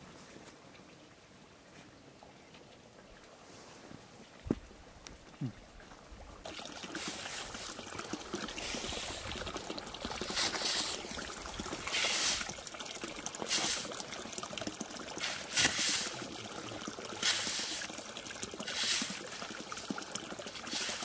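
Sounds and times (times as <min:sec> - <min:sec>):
water trickling and splashing: 0:00.1 - 0:21.0.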